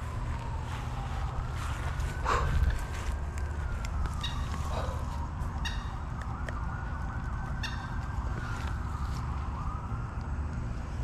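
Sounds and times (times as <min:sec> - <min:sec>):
emergency siren wailing: 0:00.0 - 0:11.0.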